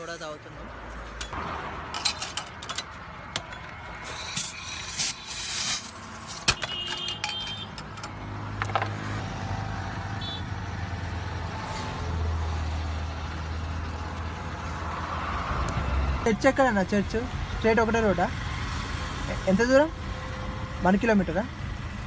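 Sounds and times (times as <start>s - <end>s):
gas hissing: 3.9s - 6.5s.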